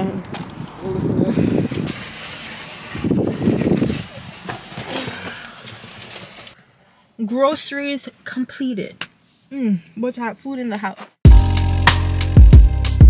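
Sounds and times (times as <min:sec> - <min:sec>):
groceries rustling and rattling: 0:01.9 - 0:06.6.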